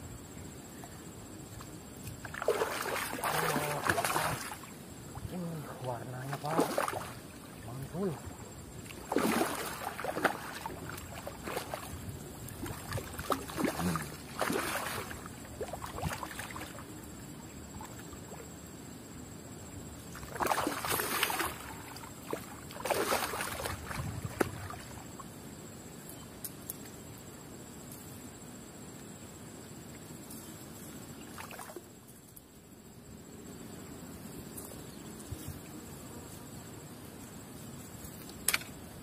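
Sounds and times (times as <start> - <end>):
fish thrashing and splashing: 2.3 - 4.6, 6.3 - 7.2, 8.9 - 11.9, 12.5 - 16.6, 22.8 - 24.7.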